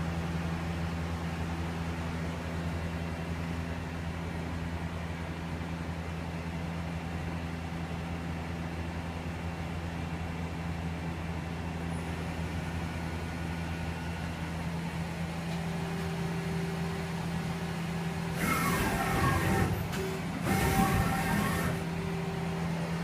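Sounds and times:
lathe machine hum: 16.8s - 23.0s
harsh machining noise with whines: 18.3s - 22.5s.

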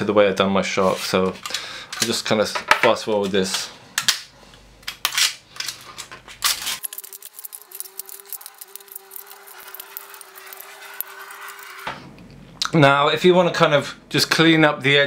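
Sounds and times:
small clicks and crackles: 5.6s - 11.8s.

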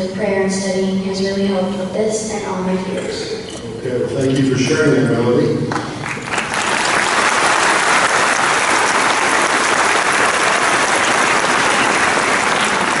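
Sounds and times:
large audience applauding: 5.7s - 13.0s.

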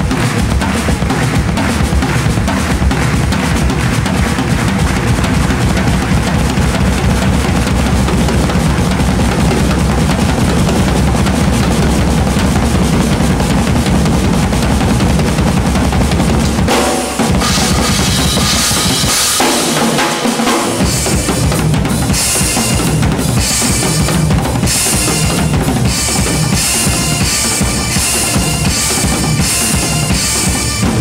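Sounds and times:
bass drum and snare: 0.0s - 31.0s
cymbal ringing wash: 16.7s - 21.5s.

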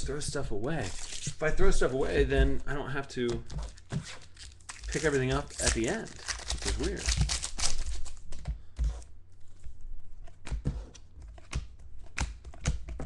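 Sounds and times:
foil wrapper crinkling: 0.8s - 1.6s, 3.7s - 8.4s
cards clicking and tapping: 10.4s - 13.0s.

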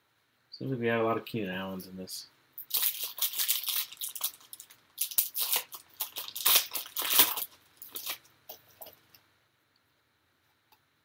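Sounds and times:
foil wrapper tearing and crinkling: 2.6s - 8.9s.

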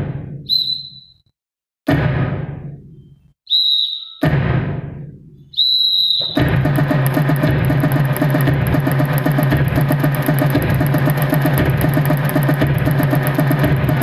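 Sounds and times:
high whistle blasts: 0.4s - 1.3s, 3.0s - 4.3s, 5.5s - 6.6s
deep booming drum hits: 1.9s - 2.8s, 4.2s - 5.1s, 6.2s - 14.0s
rhythmic music track: 6.4s - 14.0s.

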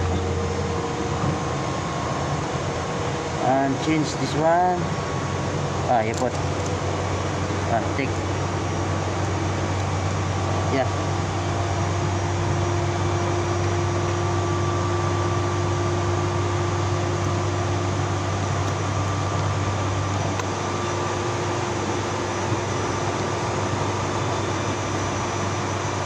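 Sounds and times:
steady mechanical hum: 0.0s - 26.0s
faint steady higher tones: 6.9s - 26.0s.

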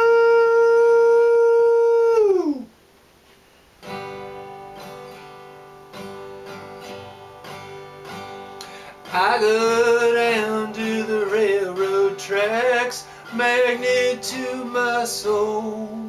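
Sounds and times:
man howling like train whistle: 0.0s - 2.7s
acoustic guitar playing: 3.4s - 16.0s.

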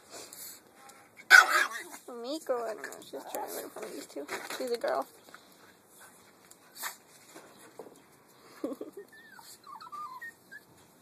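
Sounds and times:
dog yelping: 1.3s - 2.0s, 9.2s - 10.7s
small dog whimpering: 8.7s - 10.7s.

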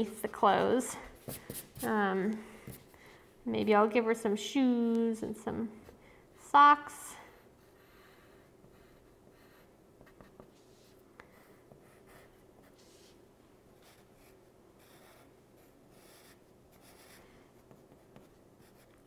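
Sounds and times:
pencil scratching on paper: 0.0s - 2.0s, 7.3s - 13.2s, 13.8s - 19.0s.

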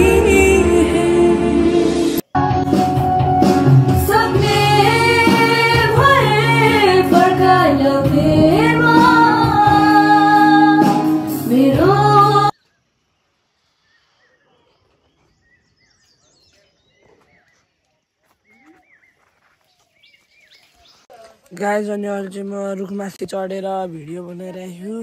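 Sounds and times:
woman singing slow melody: 0.0s - 2.0s, 4.0s - 12.5s
song accompaniment: 0.0s - 12.5s.

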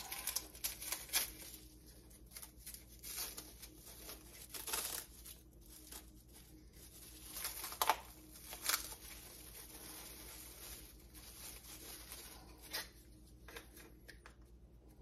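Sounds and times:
plastic bag crinkling: 0.0s - 13.6s.

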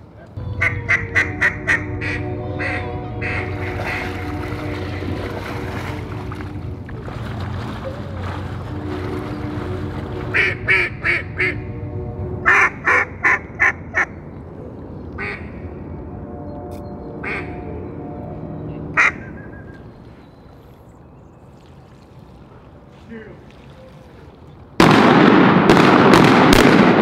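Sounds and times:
low rumble: 0.4s - 22.9s
duck quacking: 0.6s - 5.4s, 10.2s - 11.6s, 12.4s - 14.2s, 15.2s - 15.6s, 17.2s - 17.7s, 18.9s - 19.8s.

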